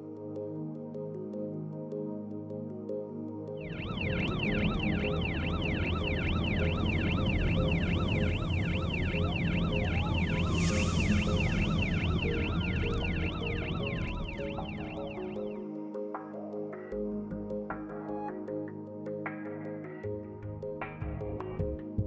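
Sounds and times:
background music: 0:00.0 - 0:22.0
fire engine siren yelping: 0:03.6 - 0:15.6
slow wailing siren tone: 0:03.6 - 0:15.8.

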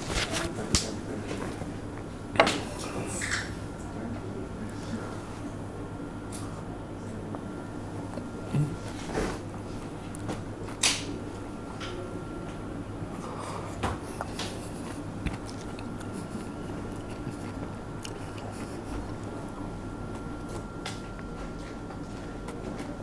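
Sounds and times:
steady low hum: 0:00.0 - 0:23.0
person gulping and chewing: 0:08.1 - 0:10.3, 0:14.2 - 0:20.5.

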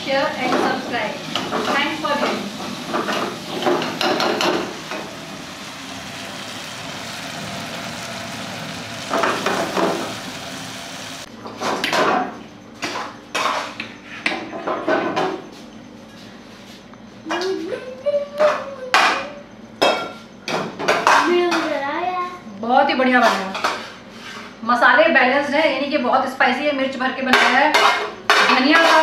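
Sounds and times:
frying sizzle: 0:00.0 - 0:11.3.

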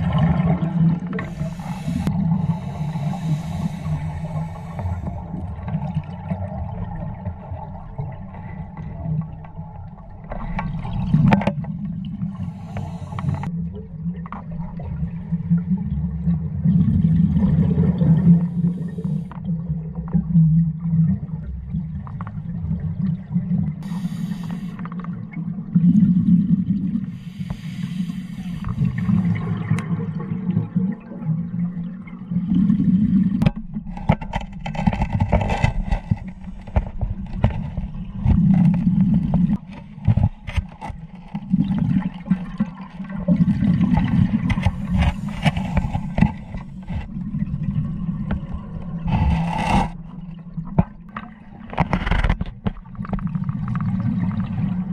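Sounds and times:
exhaust bubbles: 0:00.0 - 0:11.3, 0:13.0 - 0:33.5
muffled underwater rumble: 0:00.0 - 0:54.9
scuba regulator breathing: 0:01.2 - 0:05.4, 0:12.3 - 0:13.5, 0:23.8 - 0:24.9, 0:27.0 - 0:29.5, 0:44.7 - 0:47.1, 0:49.1 - 0:50.0.

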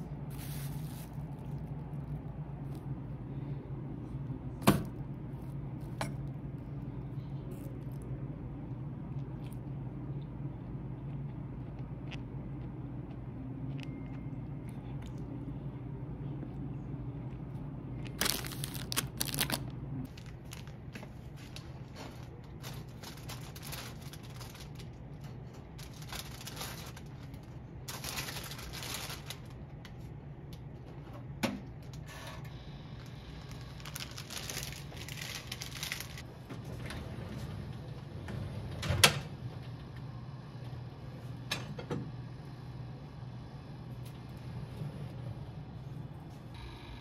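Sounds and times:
low hum: 0:00.0 - 0:31.9
rustling of handling: 0:00.3 - 0:02.9, 0:18.1 - 0:29.6, 0:33.8 - 0:36.2.

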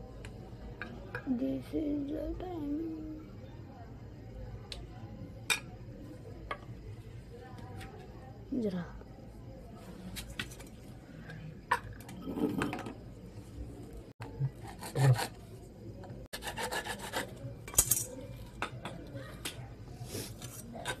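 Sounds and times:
hacksaw sawing plastic pipe: 0:14.6 - 0:15.4, 0:16.4 - 0:17.3.

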